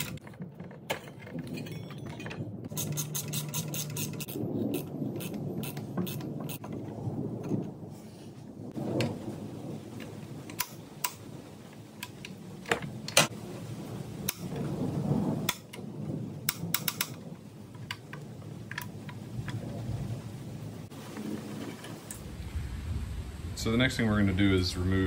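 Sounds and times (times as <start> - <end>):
scraping and handling noise: 0.0 - 9.2, 20.9 - 22.3
wrench clicking against metal: 2.7 - 6.3.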